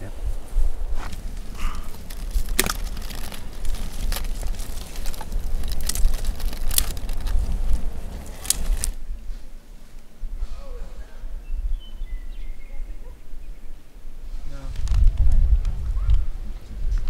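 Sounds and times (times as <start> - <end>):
campfire crackling: 0.0 - 10.2
sharp pops of fire: 1.0 - 9.0.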